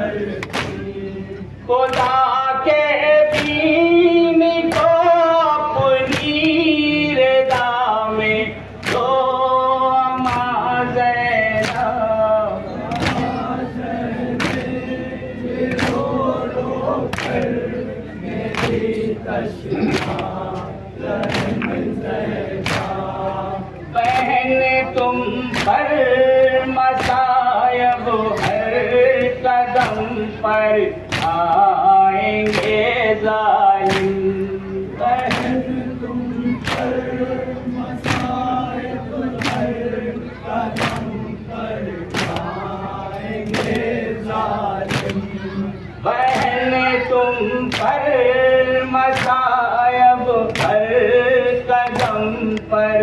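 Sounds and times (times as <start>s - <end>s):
men chanting in unison: 0.0s - 53.0s
chest-beating slaps: 0.4s - 0.9s, 3.3s - 3.6s, 8.8s - 9.2s, 10.2s - 10.5s, 11.6s - 12.0s, 12.9s - 13.4s, 14.4s - 14.8s, 18.5s - 19.0s, 19.8s - 20.4s, 21.2s - 21.9s, 22.6s - 23.1s, 26.9s - 27.3s, 27.9s - 30.1s, 31.1s - 31.6s, 32.4s - 32.8s, 33.9s - 34.2s, 35.2s - 35.7s, 36.6s - 37.0s, 38.0s - 38.4s, 39.4s - 39.7s, 40.7s - 41.1s, 42.1s - 42.5s, 43.4s - 43.9s, 44.8s - 45.3s, 47.6s - 48.0s, 49.1s - 49.4s, 50.5s - 50.8s
person singing a lament: 41.9s - 53.0s.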